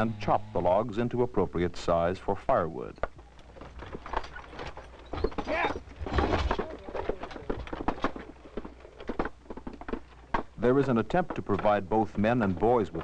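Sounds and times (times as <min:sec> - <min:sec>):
firewood logs being chopped: 0:05.2 - 0:13.0.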